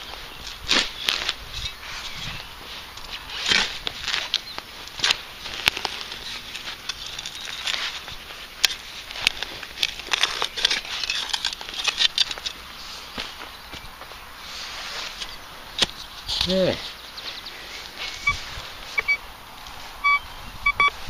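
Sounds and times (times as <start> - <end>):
spade crunching into turf: 0.4 - 13.5.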